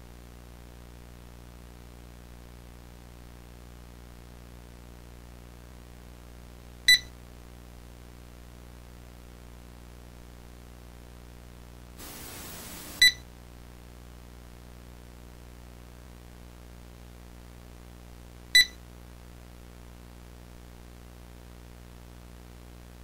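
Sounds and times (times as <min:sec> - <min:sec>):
burst of static: 0:12.0 - 0:13.2
sharp high beep: 0:13.0 - 0:13.2, 0:18.6 - 0:18.8.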